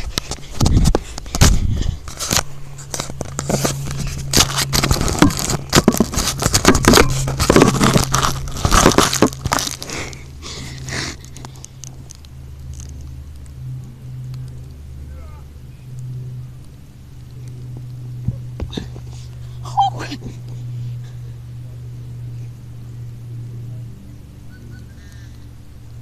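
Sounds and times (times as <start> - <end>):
phone handling crackling and rustling: 0.0 - 13.6
steady low hum: 0.0 - 26.0.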